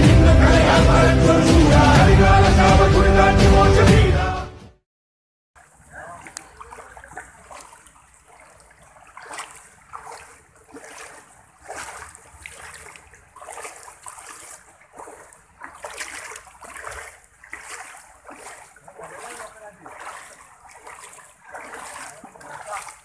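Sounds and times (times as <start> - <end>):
floodwater running and splashing: 5.6 - 23.0.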